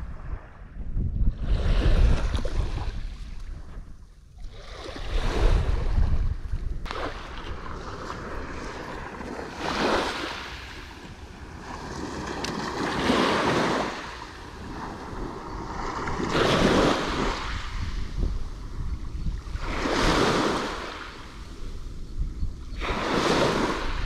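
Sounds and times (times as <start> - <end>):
small waves breaking on beach: 6.8 - 18.8, 19.4 - 22.0, 22.7 - 24.0.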